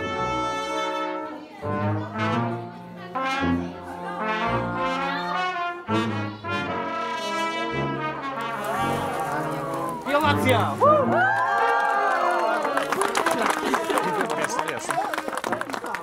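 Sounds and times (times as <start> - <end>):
slow brass melody: 0.0 - 11.6.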